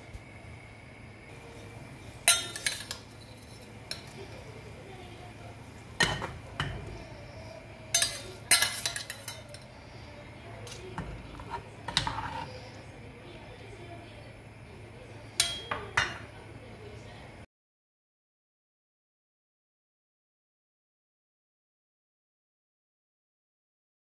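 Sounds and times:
ladle clinking against pot: 2.2 - 4.2, 6.0 - 7.0, 7.9 - 9.7, 15.4 - 16.3.

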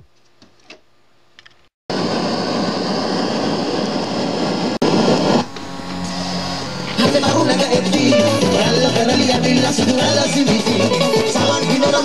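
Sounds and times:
radio static hiss: 1.9 - 8.2.

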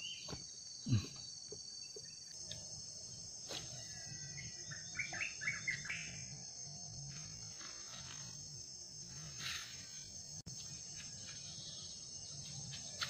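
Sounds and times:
chirps: 0.0 - 8.3
insects droning: 0.0 - 13.0.

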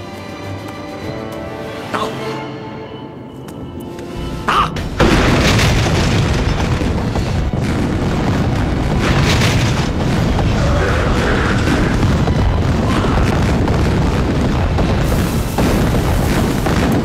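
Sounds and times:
loud explosions: 4.8 - 17.0
rumbling din of blasts: 4.8 - 17.0.

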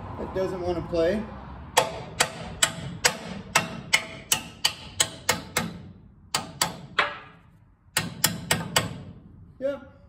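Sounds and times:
hammer striking steel: 1.8 - 9.3.

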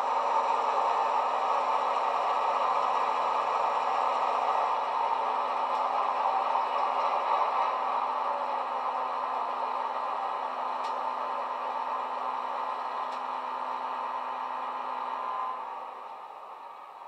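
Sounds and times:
tinny diesel engine idling recording: 0.0 - 17.0.

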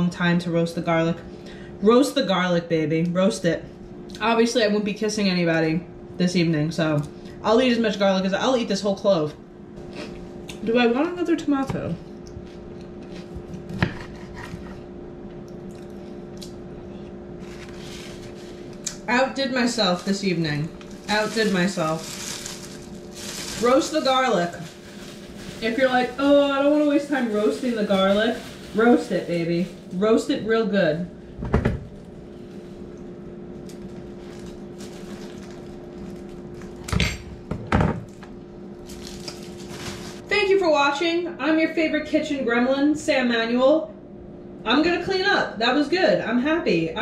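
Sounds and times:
steady hum: 0.0 - 47.0
bread handling noises: 17.3 - 30.1, 31.8 - 36.9, 38.8 - 40.3.

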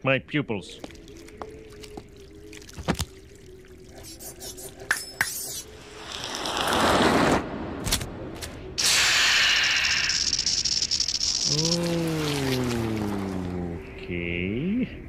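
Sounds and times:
eerie drone: 0.7 - 15.0
loud snake hiss: 8.8 - 13.2.

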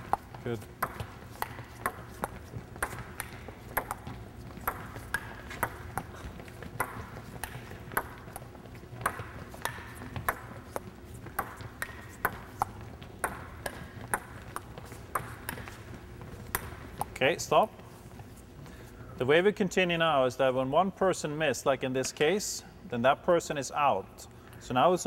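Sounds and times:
ping-pong ball clicking: 0.0 - 15.8, 16.4 - 17.2.

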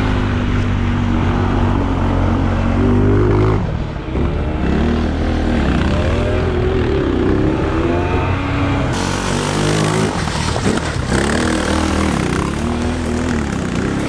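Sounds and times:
go-kart engine running: 2.9 - 14.0.

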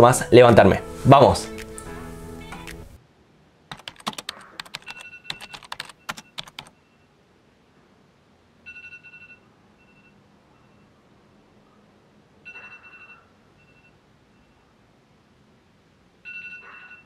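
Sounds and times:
rapid keyboard-like clicking: 3.7 - 6.7.

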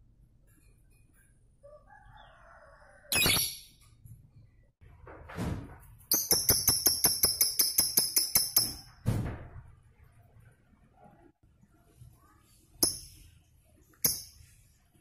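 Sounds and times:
lovebird squawks and chirps: 3.1 - 3.8.

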